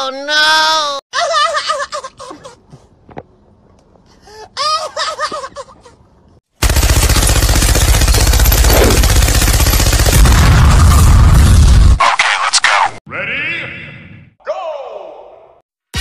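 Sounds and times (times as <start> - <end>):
machine gun automatic fire: 6.6 - 11.1.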